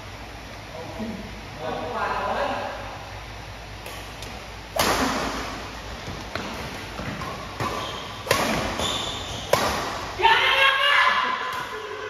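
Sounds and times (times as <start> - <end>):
rackets striking shuttlecock: 3.8 - 5.7, 6.3 - 10.2.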